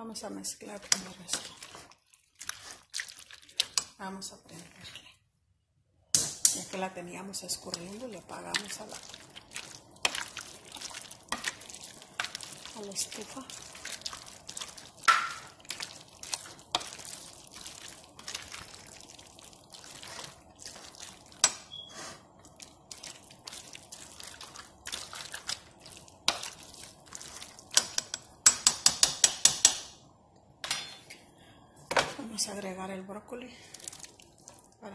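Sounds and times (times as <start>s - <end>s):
spoon stirring wet food in pot: 0.4s - 5.2s, 6.2s - 29.9s, 33.6s - 34.8s
sharp taps on pot: 15.1s - 15.4s, 27.8s - 29.9s.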